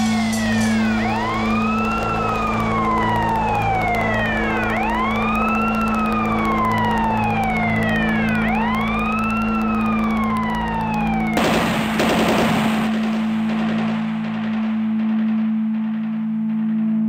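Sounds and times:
siren wailing: 0.0s - 16.7s
loud burst of noise: 0.0s - 16.9s
pulsing beat: 0.0s - 17.0s
steady low drone: 0.0s - 17.0s.

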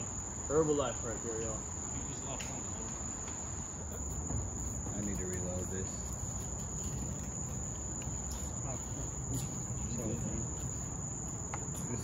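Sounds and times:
night insects trilling: 0.0s - 12.0s.

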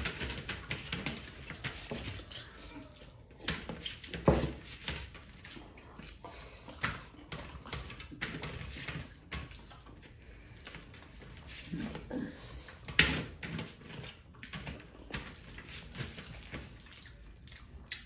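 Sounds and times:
mouth sounds of eating: 16.7s - 18.0s.

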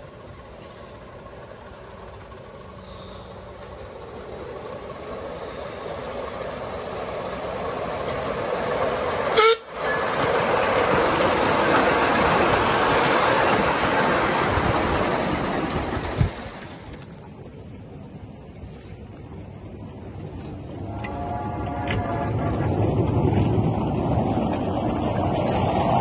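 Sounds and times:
miniature train running on track: 0.0s - 26.0s
train whistle toot: 9.3s - 10.0s, 20.8s - 22.5s.

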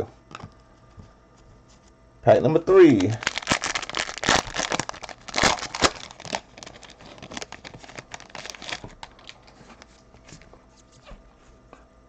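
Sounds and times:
foil wrapper crinkling and tearing: 2.8s - 9.9s.

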